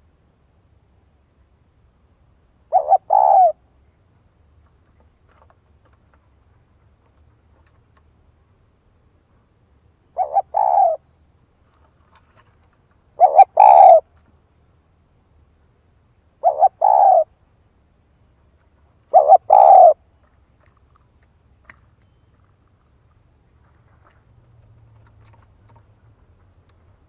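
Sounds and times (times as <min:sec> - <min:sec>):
dove cooing: 0:02.6 - 0:03.6, 0:10.1 - 0:11.1, 0:13.2 - 0:14.1, 0:16.4 - 0:17.4, 0:19.1 - 0:20.0.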